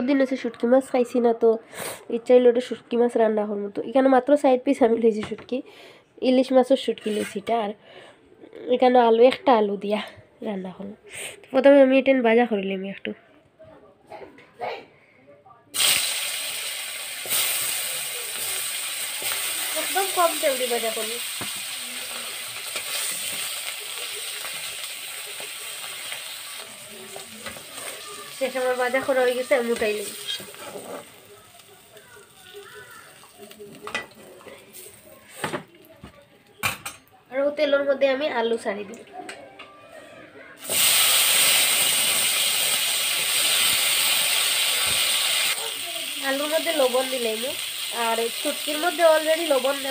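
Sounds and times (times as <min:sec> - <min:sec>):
egg sizzling in oil: 0:15.8 - 0:34.0, 0:40.6 - 0:49.9.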